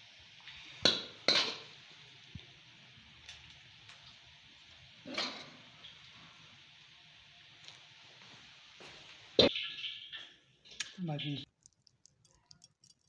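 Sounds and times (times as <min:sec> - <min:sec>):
metal cookware clanking: 0:00.8 - 0:01.7, 0:05.0 - 0:05.7.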